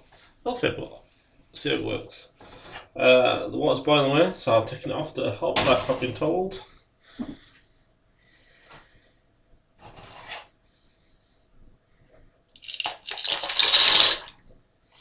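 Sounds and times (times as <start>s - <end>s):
water pouring into saucepan: 12.6s - 14.3s.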